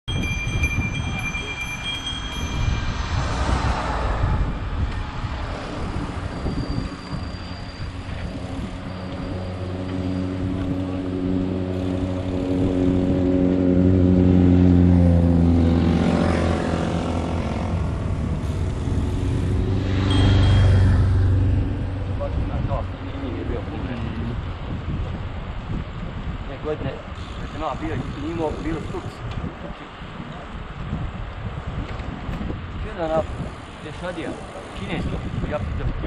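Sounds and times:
wind rushing over camera: 0.1 - 14.7, 15.3 - 36.0
vehicle engine droning: 1.9 - 24.7.

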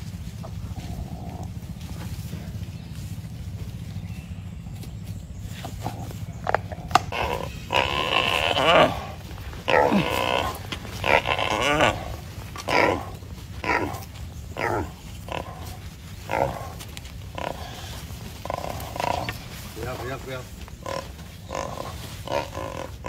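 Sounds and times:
wild boar squealing: 5.8 - 23.0.

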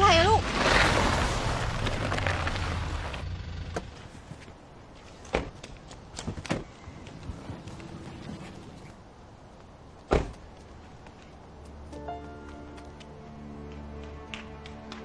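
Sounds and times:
car engine and tyre noise: 0.0 - 15.0
car door unlatching and opening: 10.1 - 10.4.

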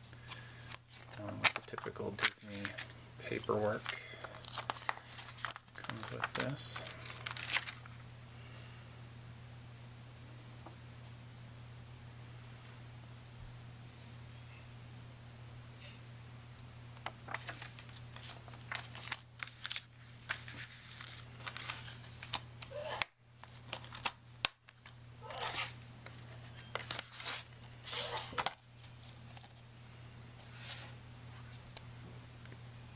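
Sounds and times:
steady low hum: 0.0 - 32.9
paper and plastic case rustling: 0.2 - 8.0, 17.0 - 22.5, 25.4 - 29.6.

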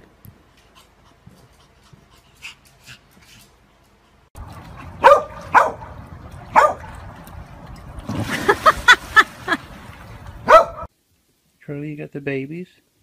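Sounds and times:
dog splashing into water: 4.4 - 10.9
large dog barking: 5.0 - 6.9, 10.4 - 10.9.

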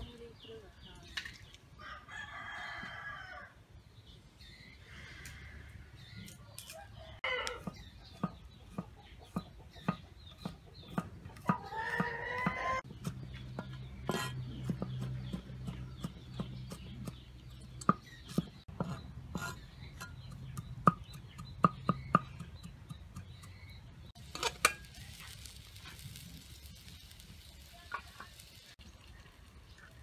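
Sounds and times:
rooster crowing: 1.8 - 3.6, 11.6 - 12.8.

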